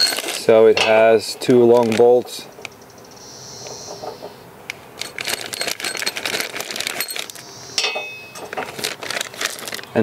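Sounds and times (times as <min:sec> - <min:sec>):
metal hardware clinking: 0:00.0 - 0:02.4, 0:05.0 - 0:08.7
plastic bag crinkling: 0:00.0 - 0:02.5, 0:04.8 - 0:07.5, 0:08.3 - 0:10.0
short metallic ring: 0:07.0 - 0:08.5.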